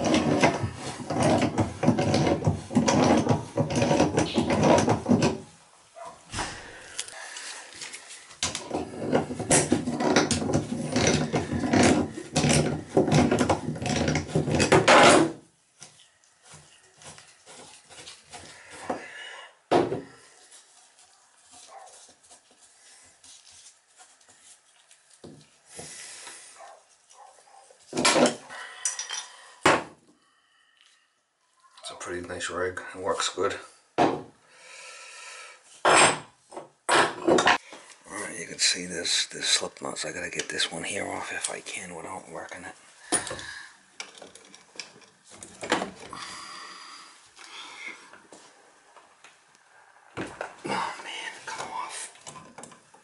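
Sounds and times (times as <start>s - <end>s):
metal scraping and rattling: 0.0s - 5.4s, 8.4s - 15.4s
metal rubbing: 0.0s - 6.1s, 8.5s - 15.3s.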